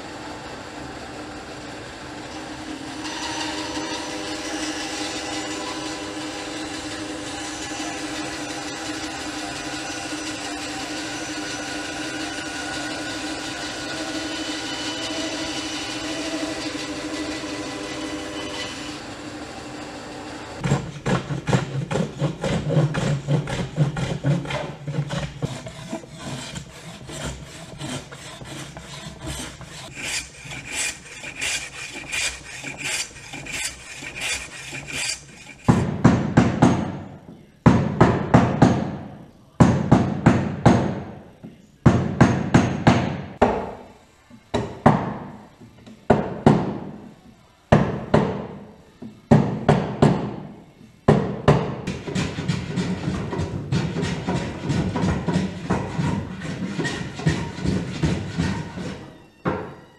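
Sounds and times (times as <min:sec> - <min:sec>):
bandsaw cutting wood: 0:02.1 - 0:35.9
hand plane shaving wood: 0:20.6 - 0:35.9.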